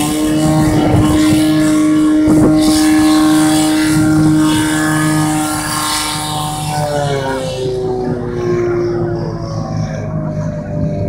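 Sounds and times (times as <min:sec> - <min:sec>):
pump engine running at high revs: 0:00.0 - 0:11.0.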